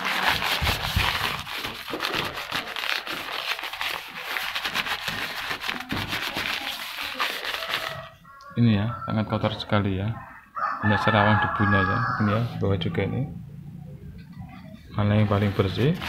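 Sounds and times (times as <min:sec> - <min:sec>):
newspaper rustling over glass: 0:00.0 - 0:08.2.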